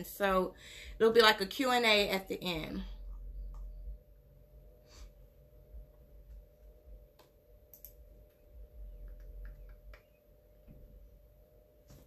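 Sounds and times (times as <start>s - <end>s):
steady low hum: 0.0s - 12.0s
keyboard and mouse clicks: 7.2s - 8.0s, 9.0s - 10.2s.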